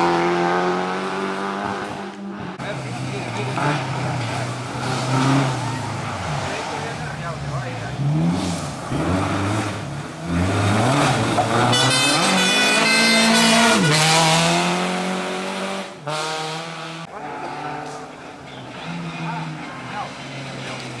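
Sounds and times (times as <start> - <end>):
rally car engine revving past: 2.8 - 21.0.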